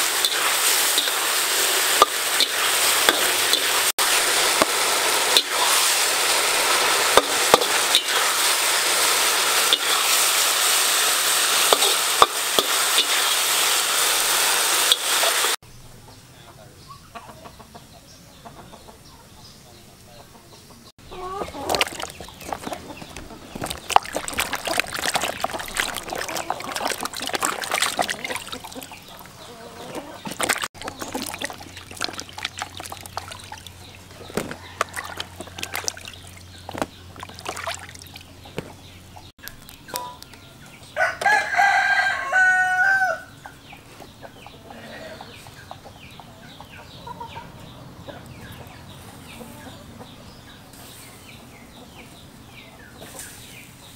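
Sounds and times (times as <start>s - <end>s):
water sloshing in plastic basin: 21.4s - 38.9s
rooster crowing: 34.2s - 36.0s, 41.0s - 43.3s.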